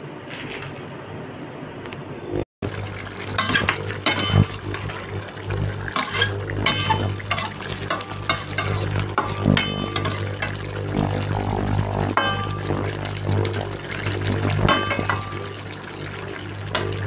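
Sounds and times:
low hum: 0:02.0 - 0:17.0
chicken sizzling: 0:02.6 - 0:17.0
metal spatula scraping wok: 0:05.9 - 0:10.7.

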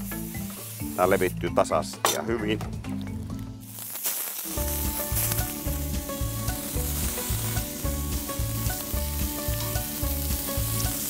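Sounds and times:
sausages sizzling on a griddle: 0:00.0 - 0:01.3, 0:03.6 - 0:11.0
steady music beat: 0:04.6 - 0:11.0.

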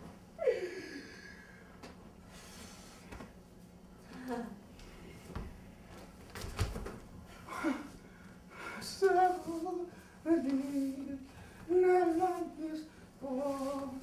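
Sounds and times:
woman humming a slow tune: 0:00.4 - 0:01.5.

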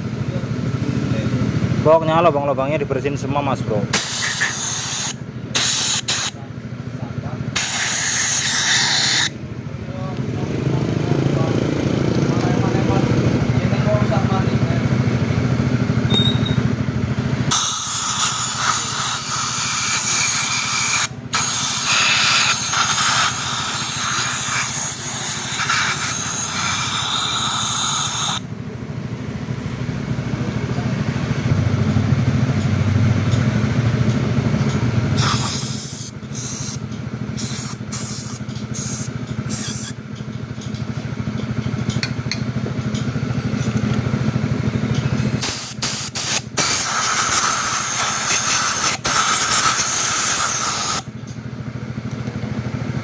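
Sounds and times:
steady low hum: 0:00.0 - 0:53.0
compressed air hissing: 0:03.9 - 0:06.4, 0:07.5 - 0:09.4, 0:17.5 - 0:28.4, 0:35.2 - 0:40.0, 0:45.4 - 0:51.1.

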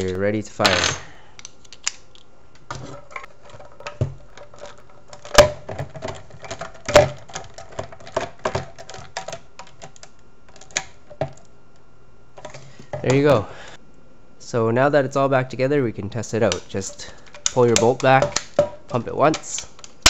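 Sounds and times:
screwdriver clicks and rattles: 0:01.4 - 0:02.3, 0:17.2 - 0:18.6.

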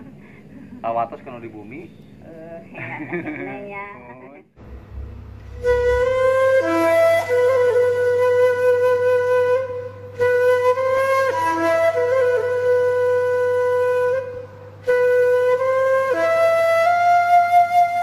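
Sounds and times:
flute music: 0:04.6 - 0:18.0.

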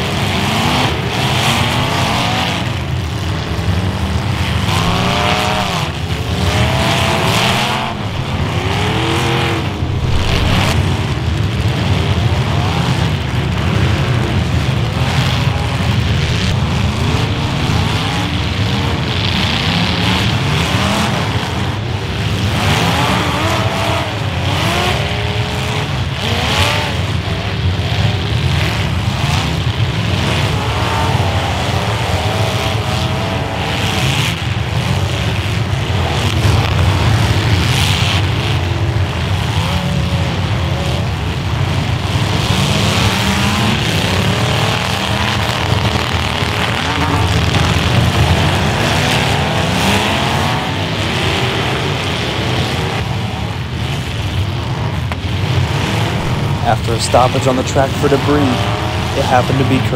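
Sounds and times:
car engines revving: 0:00.0 - 0:59.9
tires spinning and skidding: 0:00.4 - 0:13.3, 0:53.8 - 0:59.9
cars hitting: 0:55.2 - 0:59.9.

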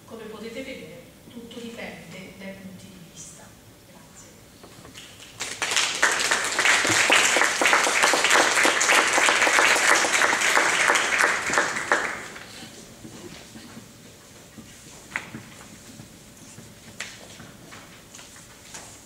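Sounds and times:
audience applauding: 0:05.0 - 0:12.8.

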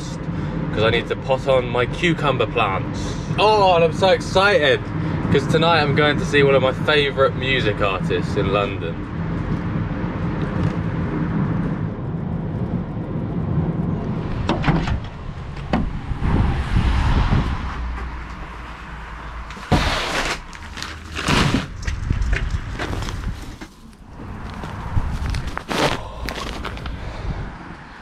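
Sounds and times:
van engine and road noise: 0:00.0 - 0:28.0
plastic bags rustling and thudding: 0:19.6 - 0:26.9.

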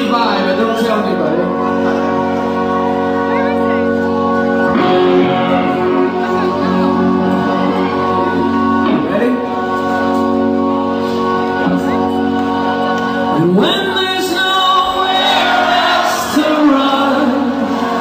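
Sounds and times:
live rock band playing: 0:00.0 - 0:18.0
man singing: 0:12.6 - 0:18.0.

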